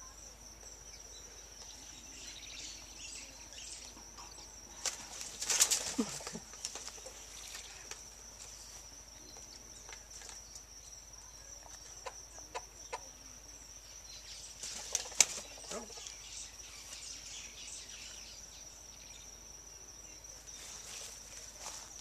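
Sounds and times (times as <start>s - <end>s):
high insect trill: 0.0s - 22.0s
bird wingbeats: 4.7s - 8.1s, 14.5s - 15.9s.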